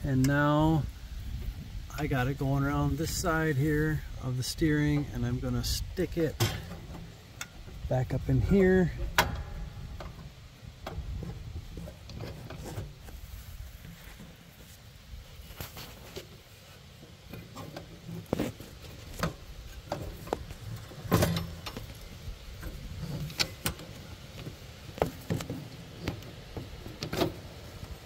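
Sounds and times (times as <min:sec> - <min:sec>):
knocks and rattles on steel frame: 0:06.2 - 0:13.1, 0:17.1 - 0:27.6
loud metal clunk: 0:06.4 - 0:07.1, 0:09.0 - 0:10.0, 0:21.0 - 0:21.8.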